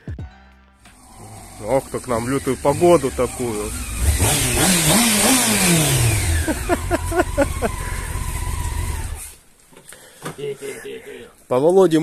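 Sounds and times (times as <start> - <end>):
motorcycle engine revving: 0.9 - 9.4
person's voice: 1.2 - 3.8.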